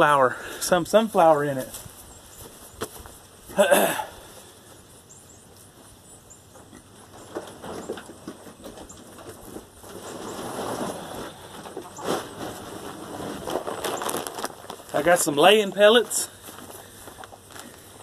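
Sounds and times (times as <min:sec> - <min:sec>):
rustling through dry grass: 0:01.0 - 0:03.6, 0:09.3 - 0:18.0.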